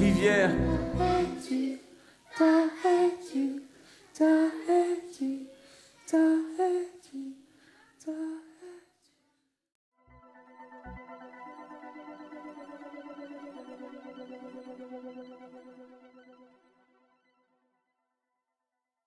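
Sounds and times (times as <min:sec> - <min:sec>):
synthesizer chord: 0:00.0 - 0:01.6, 0:10.0 - 0:17.4
person humming a short tune: 0:00.0 - 0:01.7.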